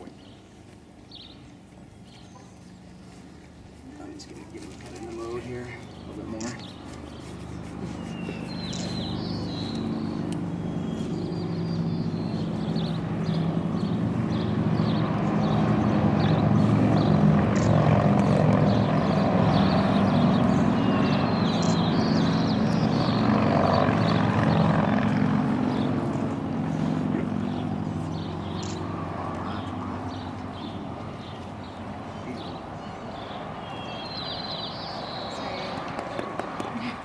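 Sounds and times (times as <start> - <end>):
birds chirping: 0.0 - 37.0
engine drone: 5.5 - 33.9.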